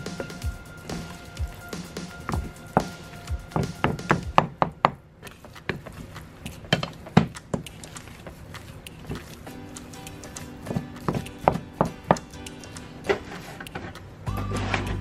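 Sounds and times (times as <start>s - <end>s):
background music: 0.0s - 4.6s, 9.5s - 15.0s.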